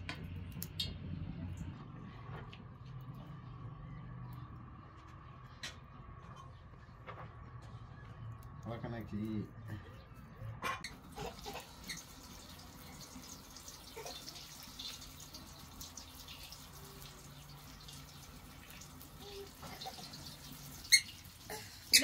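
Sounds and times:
dough frying in hot oil: 10.8 - 22.0.

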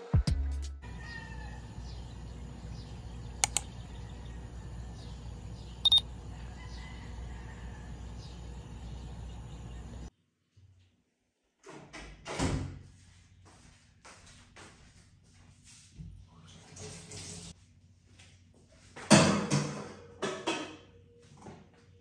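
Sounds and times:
faint birds chirping: 0.9 - 10.1.

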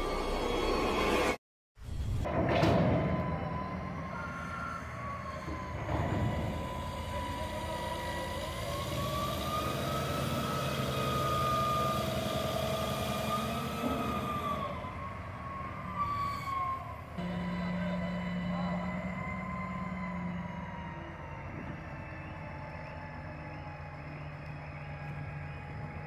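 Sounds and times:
diesel engine under load: 2.0 - 26.0
high wavering whine: 17.2 - 26.0.

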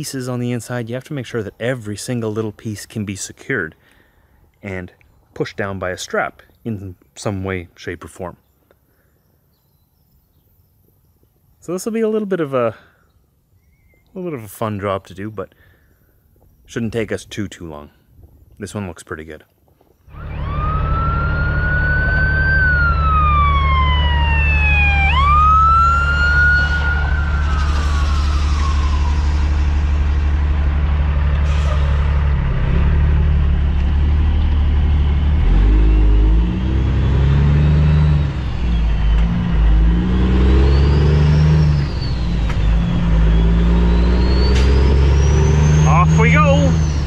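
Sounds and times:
high falling whistle: 20.1 - 30.3, 34.6 - 47.0
truck diesel engine shifting gears: 20.1 - 47.0.

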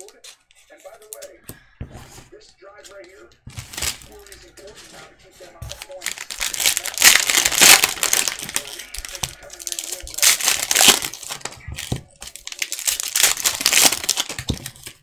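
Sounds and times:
cellophane wrapper crinkling: 3.5 - 4.9, 5.6 - 15.0.

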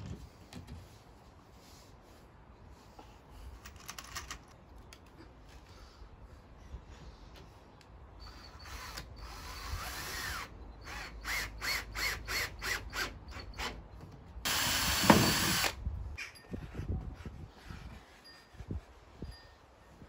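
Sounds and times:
cordless drill drilling into wood: 8.3 - 13.8, 14.5 - 15.8.

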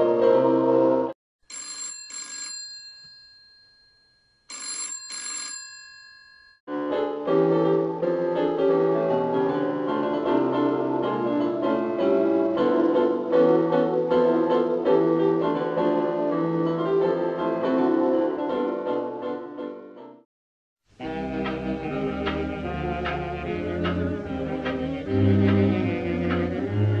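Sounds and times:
telephone bell ringing: 1.5 - 6.6
instrumental music: 21.0 - 27.0.

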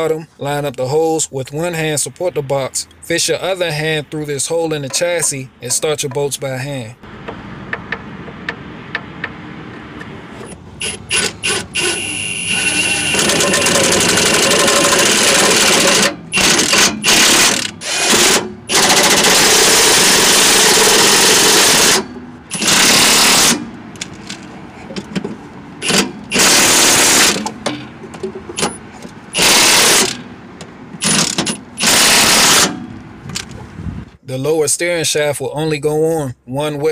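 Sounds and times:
impact wrench hammering: 10.8 - 24.2, 25.0 - 33.0.

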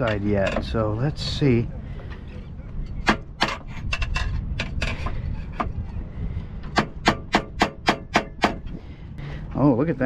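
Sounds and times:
pry bar knocking on metal: 6.7 - 8.6.

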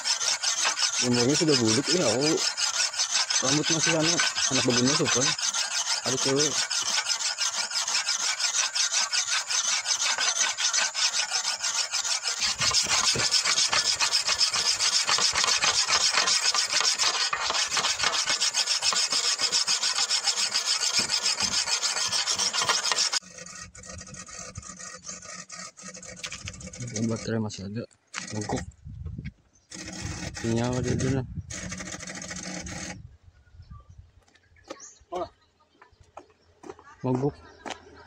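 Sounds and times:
whetstone rasping on steel blade: 0.0 - 27.3.

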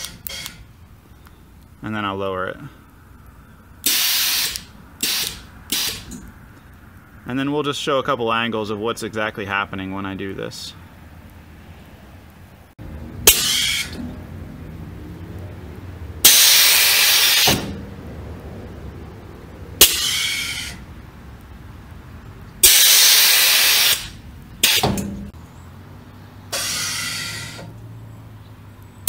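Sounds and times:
solenoid valves clicking: 0.0 - 1.7
compressed air hissing: 3.8 - 6.3, 13.2 - 14.2, 16.2 - 17.9, 19.8 - 20.9, 22.6 - 25.1, 26.5 - 27.8.

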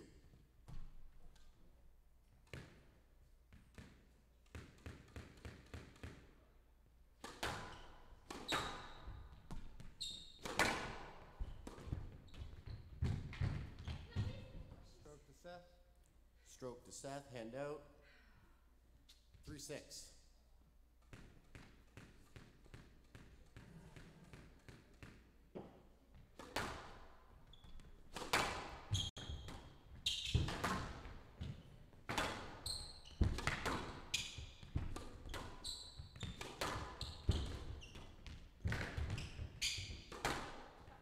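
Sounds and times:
squash ball hits: 7.2 - 14.4, 21.0 - 27.1, 27.8 - 41.0
shoe squeaks on court floor: 7.7 - 10.7, 27.5 - 28.0, 28.9 - 30.8, 32.4 - 38.3, 38.9 - 40.2.

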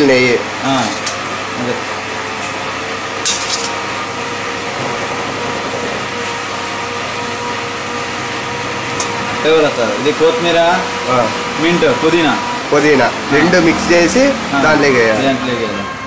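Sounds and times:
rushing kitchen noise: 0.0 - 16.0
ladle clinking on pot: 3.2 - 3.8.

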